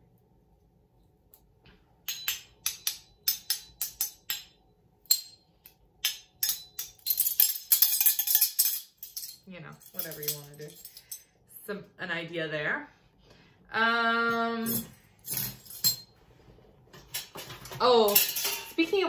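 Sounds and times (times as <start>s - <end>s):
metal spoons ringing when struck: 2.1s - 5.4s, 6.0s - 11.2s
metal spoons jangling: 6.0s - 11.2s, 14.6s - 16.1s, 18.1s - 18.8s.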